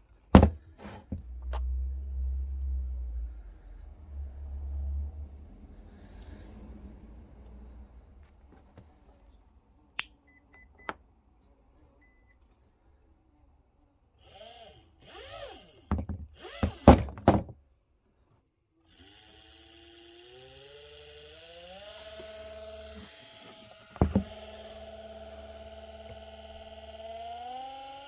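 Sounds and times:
electric motor whirring: 14.2s - 15.8s, 18.9s - 28.0s.

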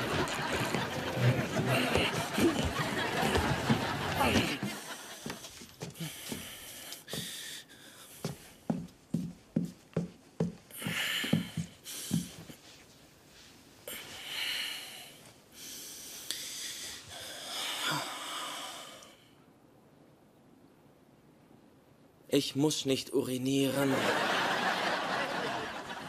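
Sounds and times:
bedding rustling: 0.0s - 6.0s
quick soft footsteps: 0.0s - 7.4s, 8.1s - 13.6s
man breathing heavily: 0.0s - 8.8s, 10.7s - 12.6s, 13.9s - 19.3s.

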